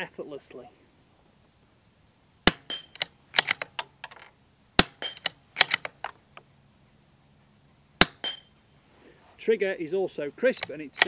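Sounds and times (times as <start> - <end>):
rifle bolt metallic clicks: 2.5 - 6.2, 10.5 - 11.0.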